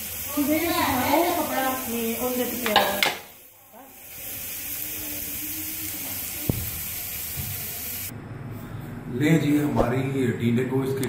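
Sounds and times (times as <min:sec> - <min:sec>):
curry sizzling hiss: 0:00.0 - 0:08.1.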